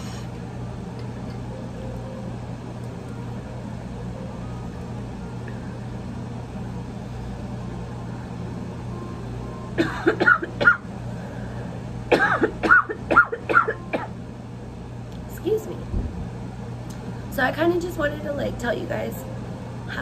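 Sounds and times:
steady low hum: 0.0s - 20.0s
woman coughing: 9.8s - 10.8s, 12.1s - 14.2s.

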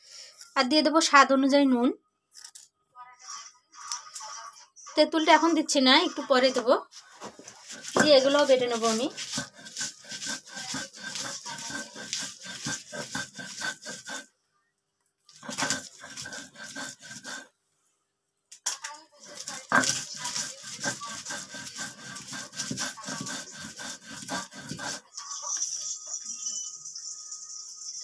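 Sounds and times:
stone roller grinding: 5.2s - 14.3s, 15.3s - 17.5s, 19.2s - 26.5s.

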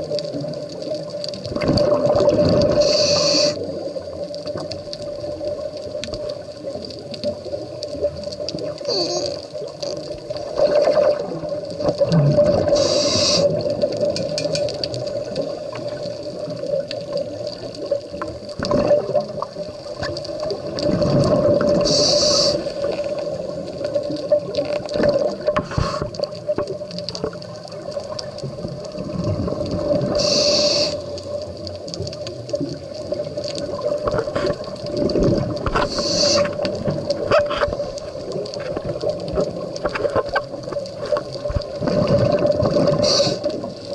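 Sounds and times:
exhaled bubbles underwater: 0.0s - 43.9s
regulator inhale hiss: 2.6s - 3.7s, 8.9s - 9.4s, 12.6s - 13.7s, 21.8s - 23.2s, 25.6s - 26.3s, 30.1s - 31.3s, 35.8s - 36.8s, 42.9s - 43.7s.

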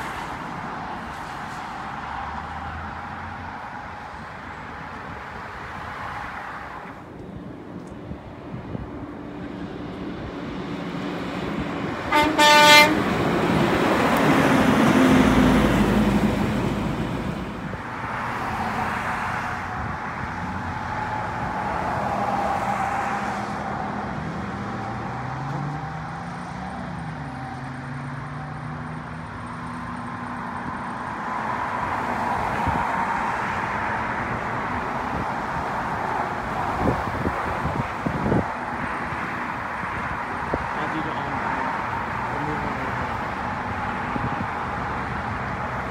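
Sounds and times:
truck driving past: 9.0s - 35.2s
vehicle engines pulling away: 13.0s - 17.8s, 18.6s - 36.1s.

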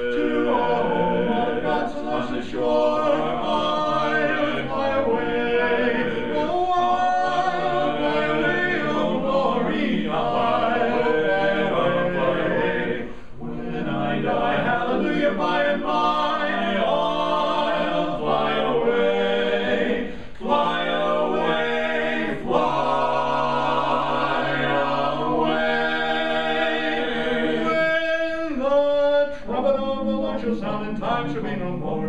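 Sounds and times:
male quartet singing a cappella: 0.0s - 32.0s.

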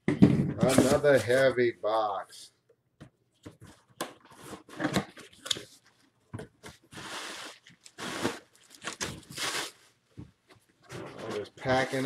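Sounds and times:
cardboard flaps crinkling: 6.4s - 9.8s
object sliding against cardboard: 6.9s - 8.4s.

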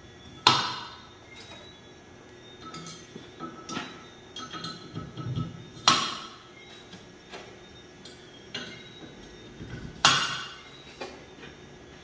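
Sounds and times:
metal valves clinking: 2.5s - 6.4s, 8.0s - 10.8s.

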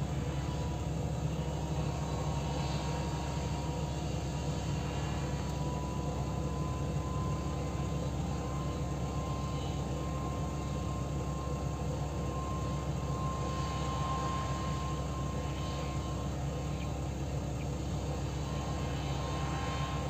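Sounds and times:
tractor diesel engine droning: 0.0s - 20.0s.

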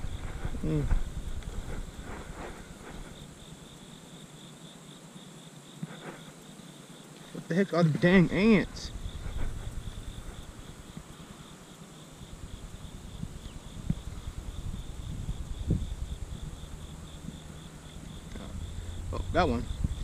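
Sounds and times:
insects chirring: 0.0s - 20.0s
low rumble: 13.0s - 20.0s.

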